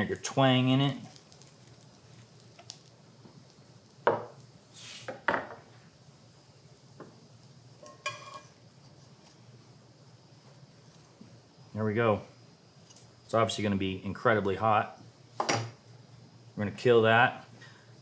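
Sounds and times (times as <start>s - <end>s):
short hiss: 4.4s - 5.3s
utensils knocking on skillet: 7.8s - 8.5s.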